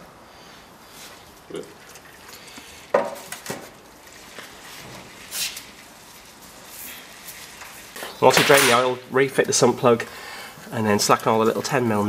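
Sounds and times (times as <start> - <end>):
brushing rustle: 0.4 - 1.5, 2.4 - 10.0.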